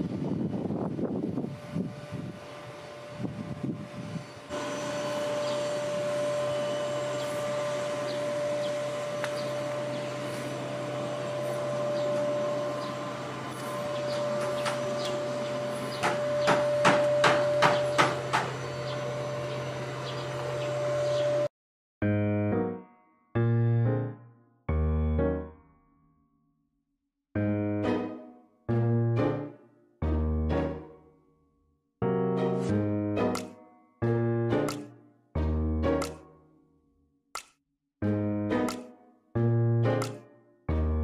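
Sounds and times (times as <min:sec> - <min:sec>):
machine hum with high whine: 0:00.0 - 0:21.5
sharp knocks: 0:16.0 - 0:18.6.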